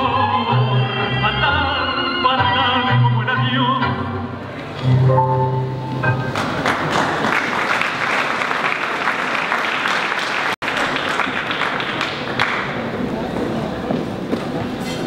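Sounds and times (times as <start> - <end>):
tango music: 0.0 - 7.2
audience applauding: 6.3 - 13.0.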